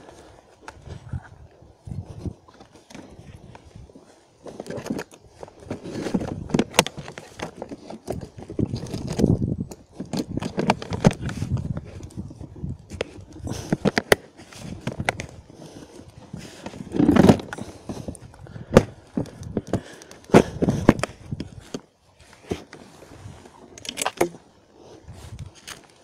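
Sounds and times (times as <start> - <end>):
plastic clicks knocks and scrapes: 4.4 - 12.2, 12.9 - 15.4, 16.0 - 22.8, 23.7 - 24.4.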